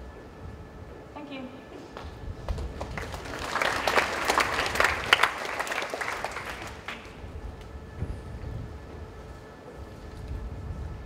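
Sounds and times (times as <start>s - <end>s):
audience applauding: 2.5s - 7.2s.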